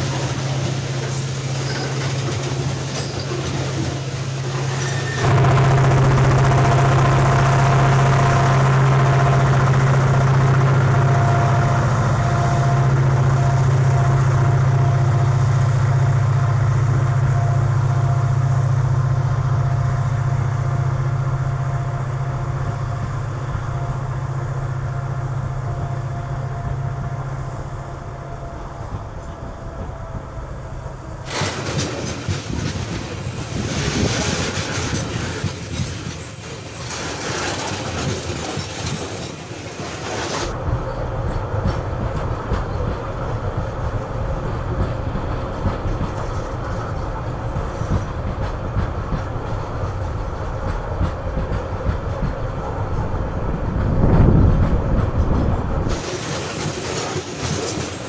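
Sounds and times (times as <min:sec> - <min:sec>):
train wheels clattering on rails: 0:00.0 - 0:07.6, 0:31.2 - 0:58.0
locomotive engine drone: 0:00.0 - 0:58.0.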